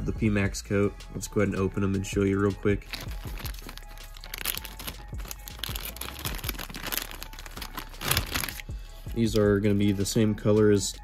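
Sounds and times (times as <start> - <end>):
plastic bag crinkling: 2.8 - 8.7.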